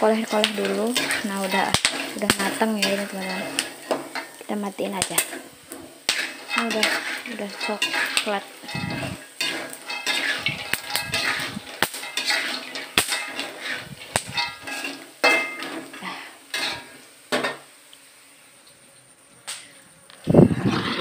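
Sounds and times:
metal spatula scraping wok: 0.0s - 17.7s, 20.4s - 21.0s.

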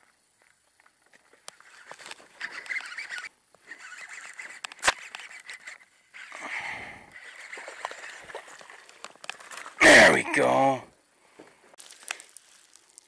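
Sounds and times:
reel clicks: 1.4s - 6.4s, 7.1s - 9.8s
fishing reel whirring: 1.5s - 9.8s.

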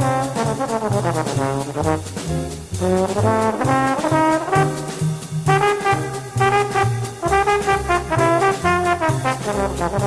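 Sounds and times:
trombone solo: 0.0s - 10.0s
upright bass walking: 0.0s - 10.0s.

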